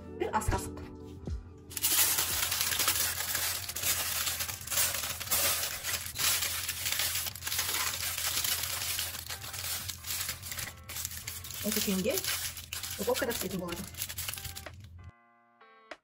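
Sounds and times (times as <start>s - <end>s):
aluminium foil crinkling: 1.7s - 15.0s.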